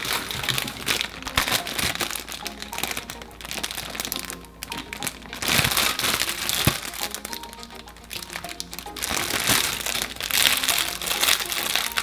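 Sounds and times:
light background music: 0:00.0 - 0:12.0
plastic wrapper crinkling: 0:00.0 - 0:12.0.

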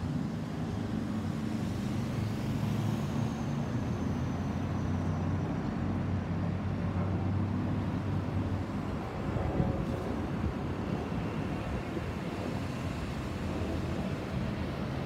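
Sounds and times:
jet airliner roar overhead: 0:00.2 - 0:15.0.

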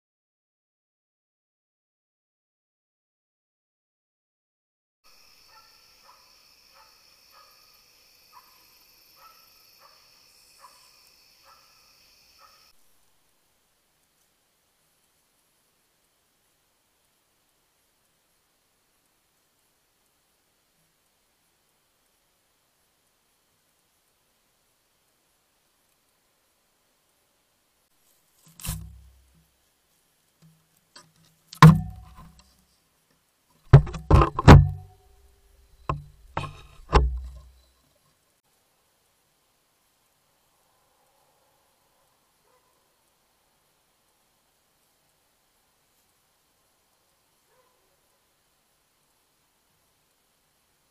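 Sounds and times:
crickets trilling: 0:05.1 - 0:12.8
sharp knocks: 0:31.6 - 0:32.4, 0:33.7 - 0:34.9, 0:35.9 - 0:37.5.

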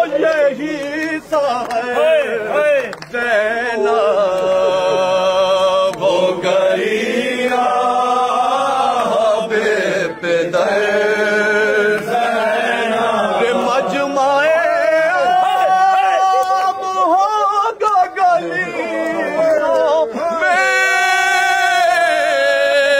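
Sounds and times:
man chanting a lament: 0:00.0 - 0:22.9.

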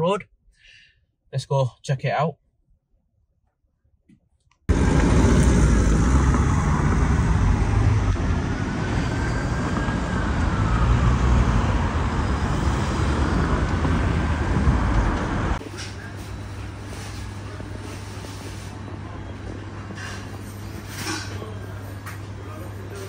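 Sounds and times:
cars driving past: 0:04.7 - 0:15.6
loud low road noise: 0:04.7 - 0:23.0.

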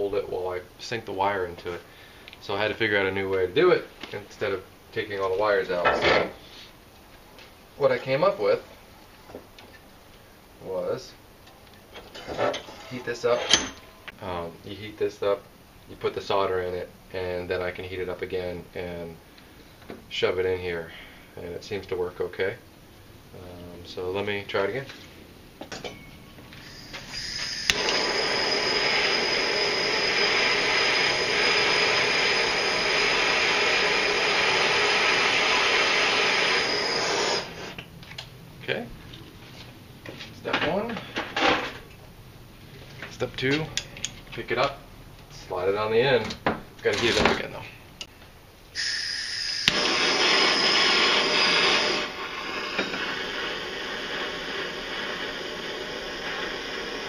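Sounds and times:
gas hissing faintly: 0:00.0 - 0:25.3, 0:26.3 - 0:37.9, 0:38.6 - 0:57.0
gas hissing: 0:12.0 - 0:15.3, 0:26.5 - 0:37.9, 0:47.4 - 0:57.0
torch flame hissing: 0:26.5 - 0:37.8, 0:48.8 - 0:57.0
torch igniter click: 0:26.6 - 0:33.8, 0:48.8 - 0:55.3
faint high whistle: 0:26.6 - 0:34.3, 0:35.4 - 0:37.6, 0:48.8 - 0:52.1.

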